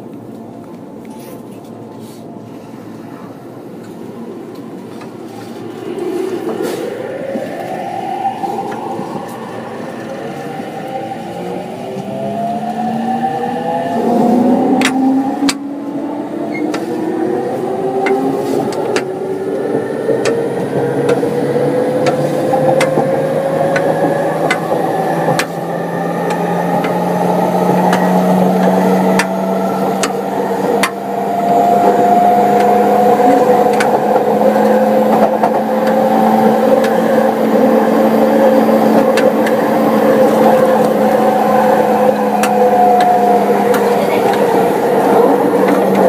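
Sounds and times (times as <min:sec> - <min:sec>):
train rumble: 0:00.0 - 0:46.0
electric train motor whine: 0:04.1 - 0:46.0
rail-joint clicks: 0:14.7 - 0:15.7, 0:18.0 - 0:38.0, 0:38.7 - 0:46.0.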